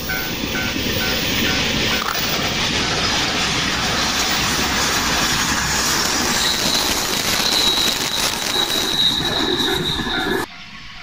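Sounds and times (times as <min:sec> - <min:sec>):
train wheels rattling on rails: 0:00.0 - 0:11.0
thin high squeal: 0:06.2 - 0:10.5.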